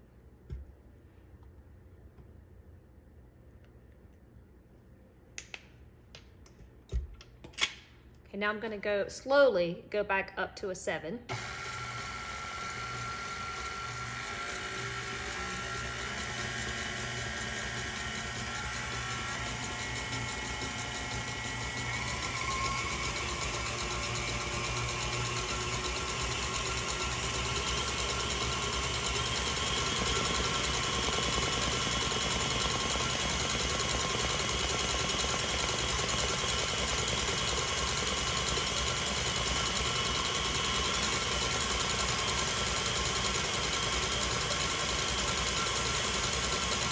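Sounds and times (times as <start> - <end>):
stand mixer motor humming: 11.3 - 46.9.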